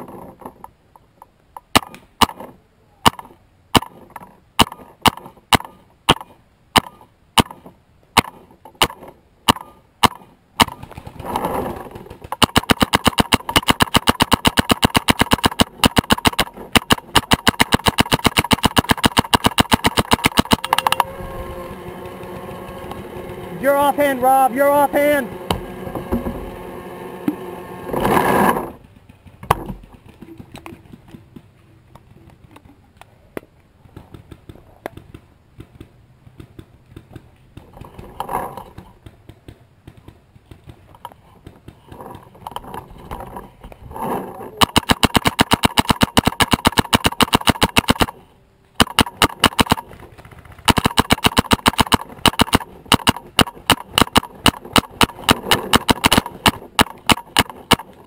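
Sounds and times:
paintball marker rapid shots: 1.7s - 21.1s, 44.6s - 48.2s, 48.8s - 58.0s.

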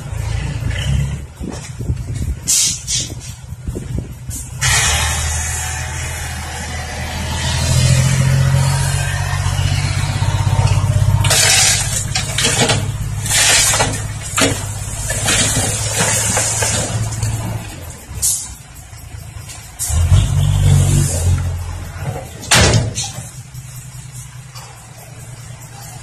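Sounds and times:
diesel truck engine revving: 0.0s - 26.0s
soil and rock sliding out: 11.2s - 17.6s.

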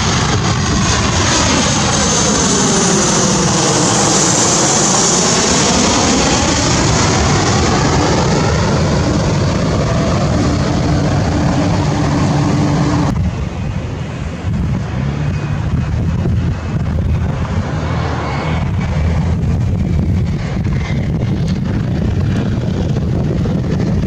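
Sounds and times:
jet airliner passing overhead: 0.0s - 24.0s.

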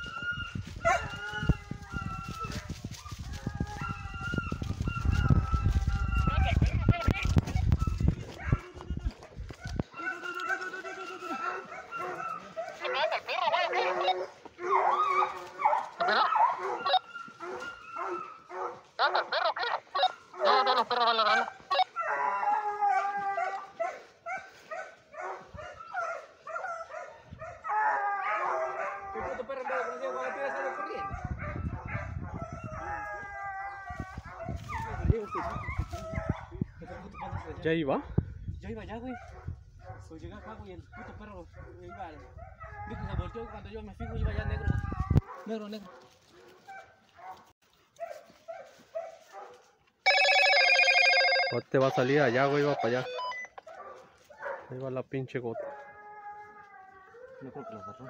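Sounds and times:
footsteps pushing through brush: 0.0s - 26.5s, 33.2s - 36.5s, 44.8s - 50.1s, 53.6s - 54.9s
hunting dogs baying: 0.0s - 38.4s, 39.0s - 58.0s.

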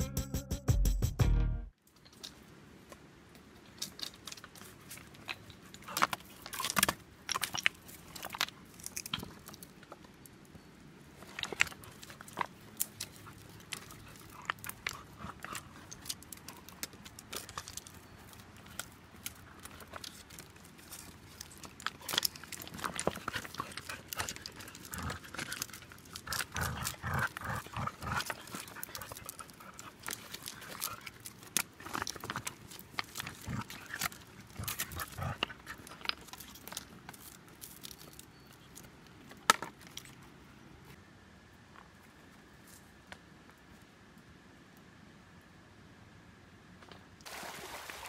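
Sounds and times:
dogs growling: 12.0s - 17.9s, 21.8s - 36.8s.

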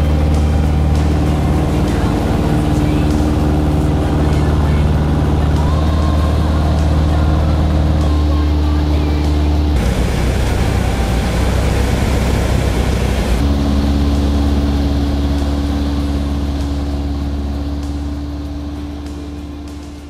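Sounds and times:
propeller aircraft engine droning: 0.0s - 20.0s
rough rushing noise: 0.0s - 20.0s.

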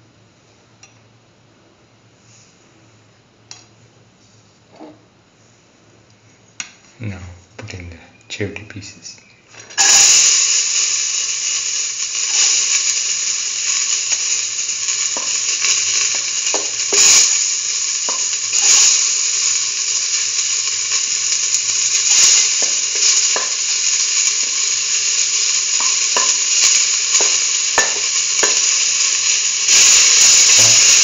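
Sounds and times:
vegetables sizzling in hot fat: 9.4s - 31.0s.

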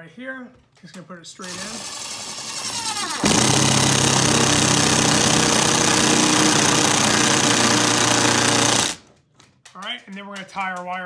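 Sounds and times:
impact driver hammering: 1.5s - 9.1s.

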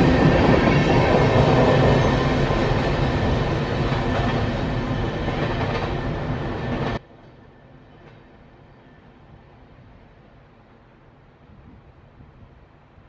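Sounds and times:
train wheels clattering on rails: 0.0s - 8.4s.

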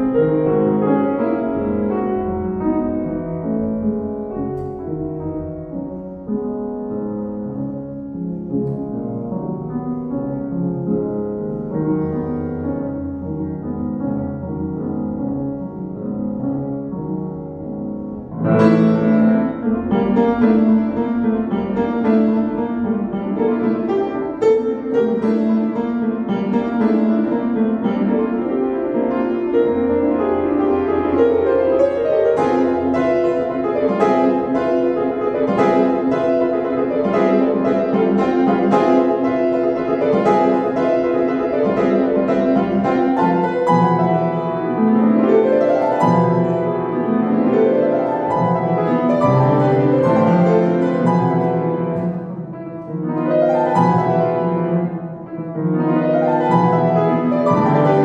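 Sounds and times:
solo classical piano: 0.0s - 58.0s.

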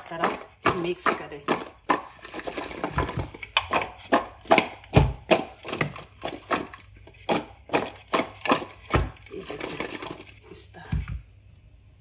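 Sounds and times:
potato chunks knocking against bowl: 0.0s - 10.3s.

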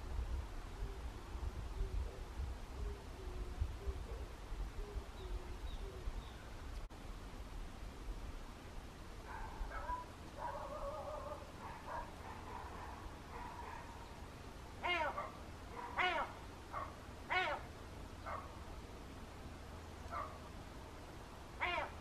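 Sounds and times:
animal crying: 14.8s - 16.4s, 17.3s - 17.7s, 21.6s - 22.0s.

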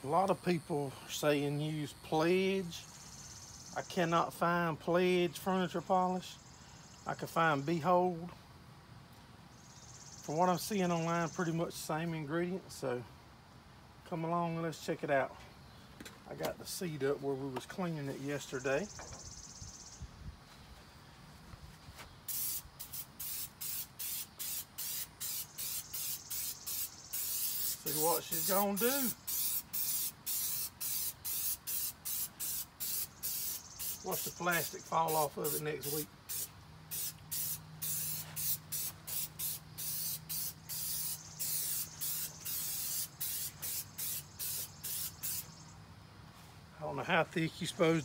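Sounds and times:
aerosol can spraying bursts: 22.3s - 45.5s.

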